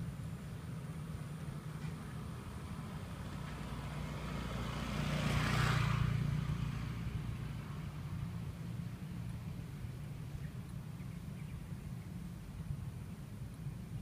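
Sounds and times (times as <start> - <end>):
motor scooter passing: 1.6 - 9.4.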